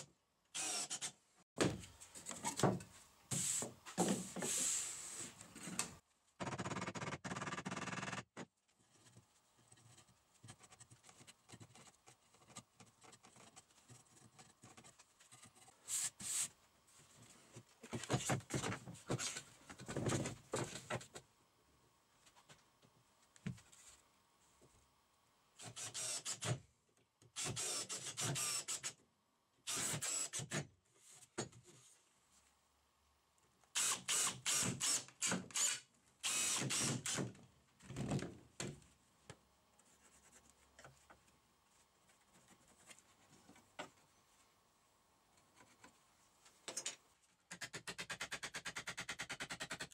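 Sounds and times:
cordless drill driving screws: 0.6 - 1.1, 33.8 - 37.3.

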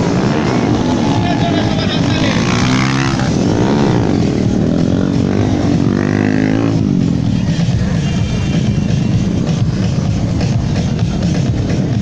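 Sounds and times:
motorcycle engines revving: 0.0 - 12.0.

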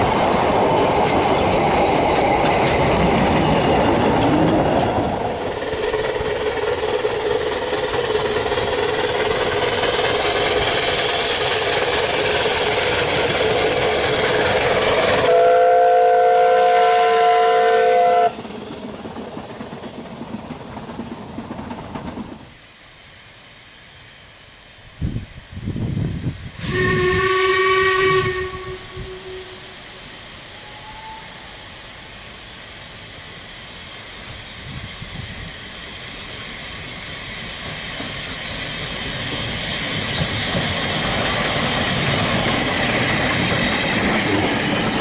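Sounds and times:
steam exhaust puffs: 0.0 - 45.0
steam locomotive whistle: 14.2 - 18.5, 26.6 - 31.8.

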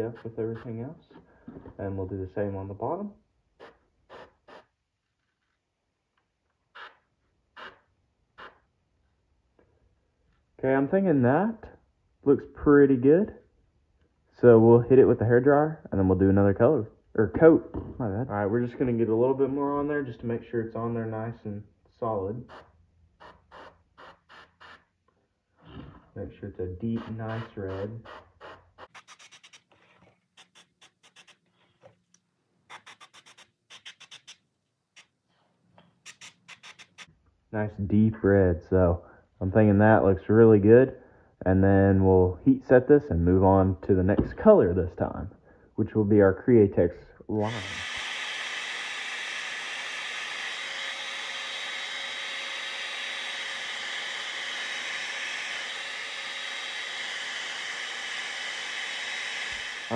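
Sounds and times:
airbrush spraying in short bursts: 3.6 - 4.7, 6.8 - 7.0, 8.4 - 8.6, 22.5 - 24.9, 27.0 - 31.5, 36.0 - 37.1
hair dryer blowing: 47.4 - 59.9.

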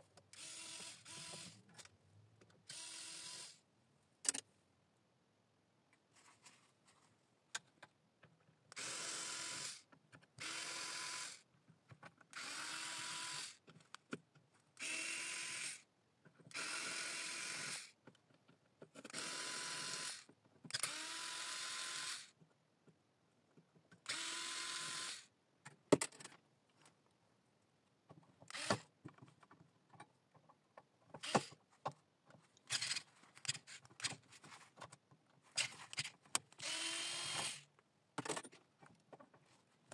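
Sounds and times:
electric screwdriver whine: 0.4 - 1.6, 24.1 - 25.3, 35.6 - 37.6.

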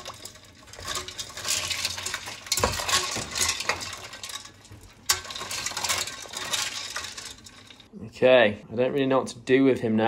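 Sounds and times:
ice knocking against metal pot: 0.0 - 7.8
ice cubes clinking: 0.0 - 7.9
water sloshing in a pot: 0.0 - 7.9.

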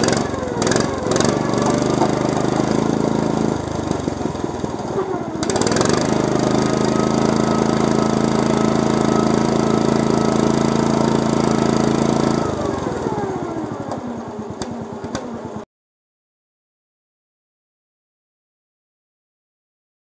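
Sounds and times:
riding mower engine revving: 0.0 - 15.6.

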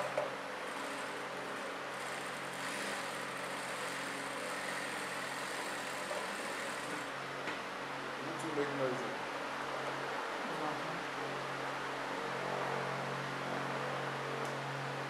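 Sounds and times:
motor humming: 0.0 - 7.2.

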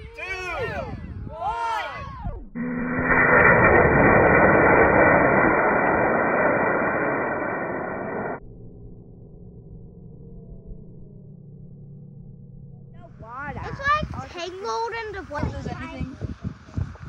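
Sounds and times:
rocket motor rushing hiss: 2.6 - 8.4.

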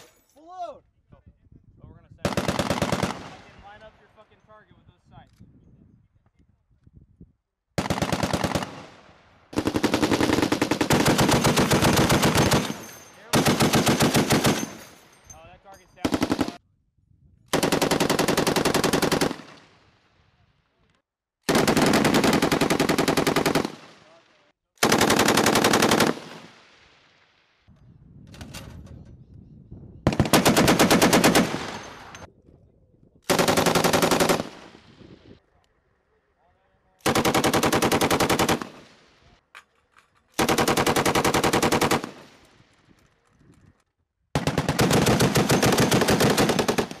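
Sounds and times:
machine gun automatic fire: 2.3 - 3.4, 9.5 - 14.8, 16.0 - 16.6, 21.5 - 23.9, 24.8 - 26.5, 30.1 - 32.2, 37.0 - 38.9, 40.4 - 42.4, 44.4 - 47.0.

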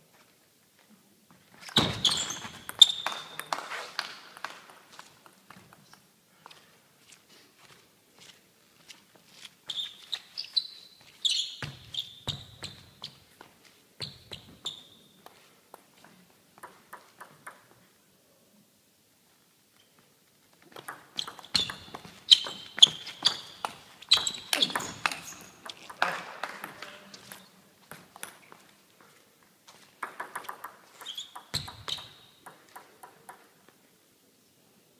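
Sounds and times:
table tennis ball clicking: 30.0 - 33.5.

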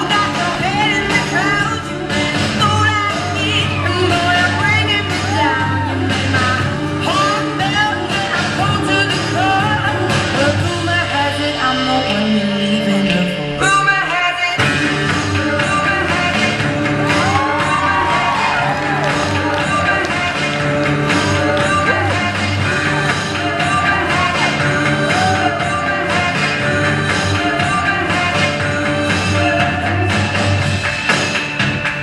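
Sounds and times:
instrumental accompaniment with bass: 0.0 - 32.0
choir singing pop-rock song: 14.6 - 30.4.

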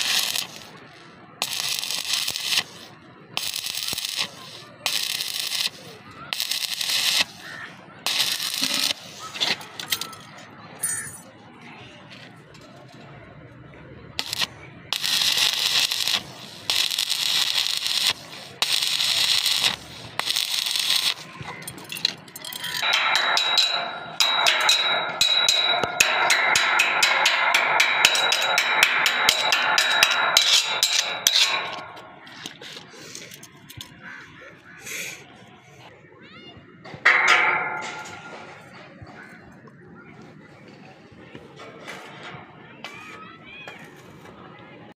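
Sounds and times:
welding arc crackling: 0.0 - 9.9, 14.2 - 32.6.

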